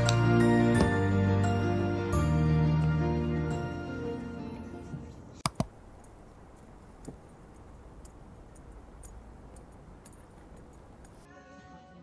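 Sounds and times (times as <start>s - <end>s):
low city rumble: 0.0s - 11.3s.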